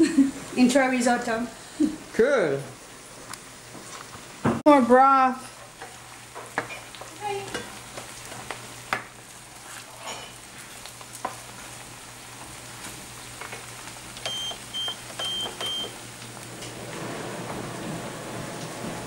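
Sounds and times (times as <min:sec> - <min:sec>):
rice simmering sizzle: 0:00.0 - 0:19.0
spoon scraping cast-iron pan: 0:09.6 - 0:11.6.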